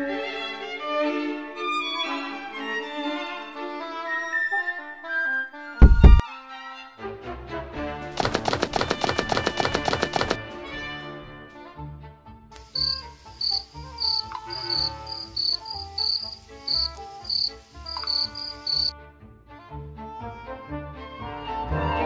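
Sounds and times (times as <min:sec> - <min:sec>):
crickets chirping: 0:12.6 - 0:18.9.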